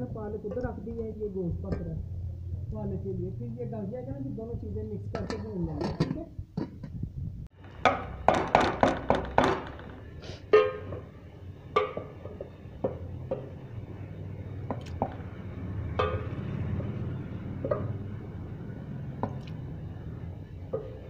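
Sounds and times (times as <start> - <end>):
pot boiling rumble: 4.8 - 21.0
metal pot lid clanking: 10.5 - 11.1, 11.7 - 13.5, 15.9 - 16.5.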